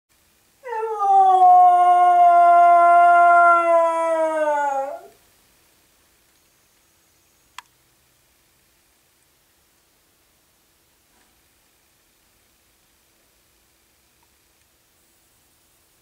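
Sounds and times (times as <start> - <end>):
dog howling: 0.6 - 5.2.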